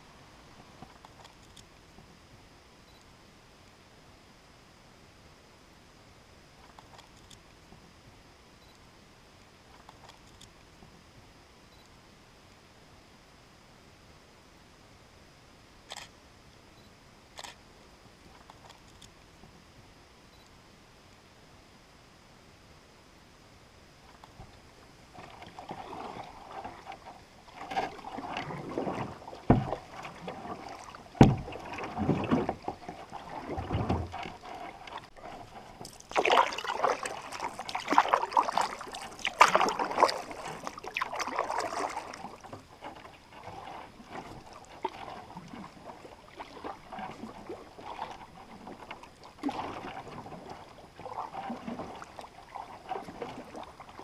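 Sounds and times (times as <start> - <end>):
paddle splashing in water: 25.1 - 54.0.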